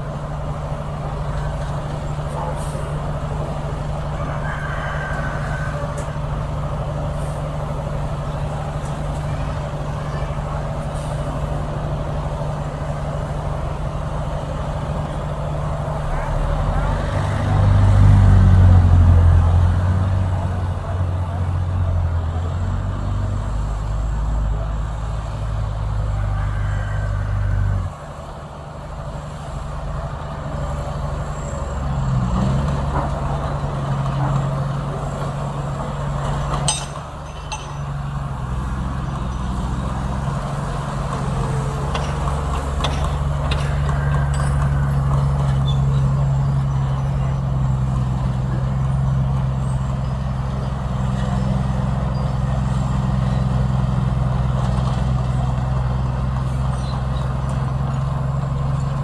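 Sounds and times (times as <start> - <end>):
heavy diesel engine under load: 0.0 - 59.0.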